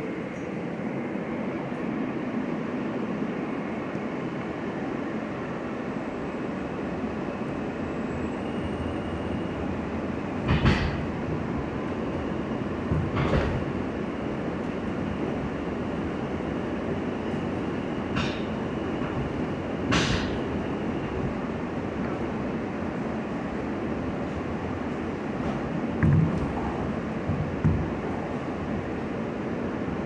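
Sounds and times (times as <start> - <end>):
subway wheels rumbling on rails: 0.0 - 30.0
heavy wheel clunks: 18.1 - 20.4, 25.4 - 28.2.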